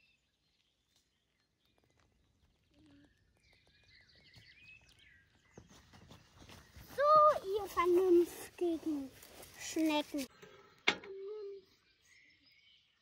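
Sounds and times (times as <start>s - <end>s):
faint bird chirps: 0.0s - 7.4s, 10.3s - 13.0s.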